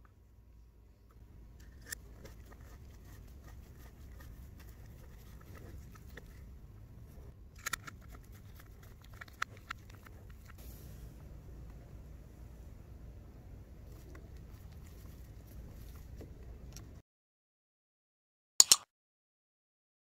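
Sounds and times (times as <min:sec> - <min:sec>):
screwdriver clicking and scraping: 0:07.6 - 0:08.1, 0:18.6 - 0:18.8.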